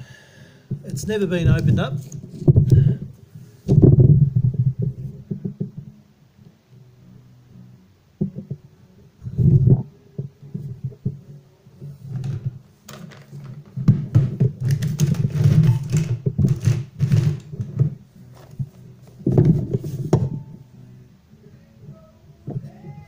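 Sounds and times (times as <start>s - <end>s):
low steady hum: 17.4s - 23.0s.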